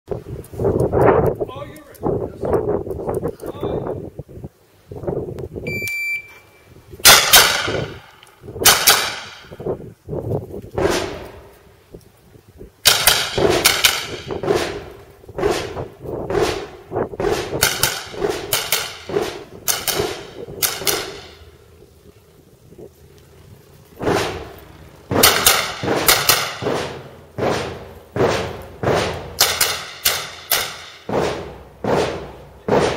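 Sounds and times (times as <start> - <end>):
rifle shots echoing: 7.0 - 9.4, 24.0 - 32.9.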